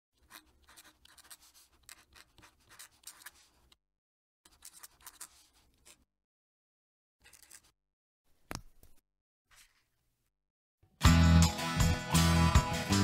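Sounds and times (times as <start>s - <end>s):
pen nib scratching on paper: 0.2s - 3.8s, 4.5s - 6.1s, 7.2s - 7.7s.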